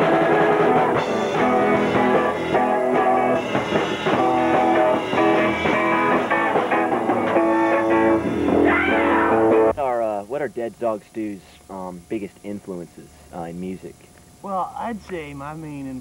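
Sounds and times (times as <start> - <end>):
electric guitar run: 0.0 - 9.7
rock band playing: 0.0 - 9.8.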